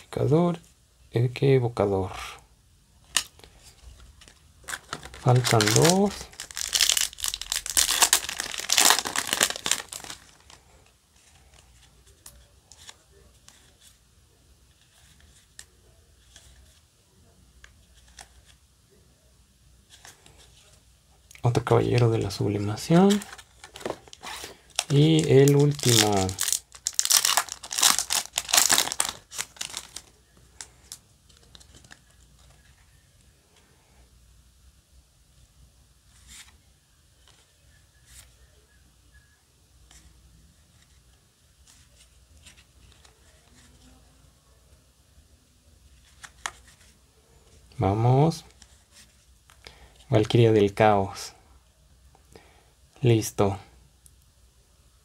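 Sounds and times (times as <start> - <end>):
foil wrapper crinkling: 4.6 - 10.6, 22.8 - 32.5.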